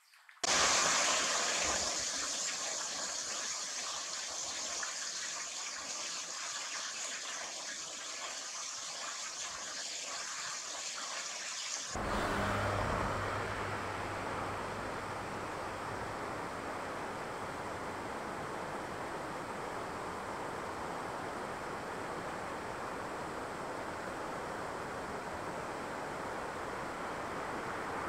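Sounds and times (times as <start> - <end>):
rushing stream water: 0.4 - 28.0
steady noise with low hum: 12.0 - 28.0.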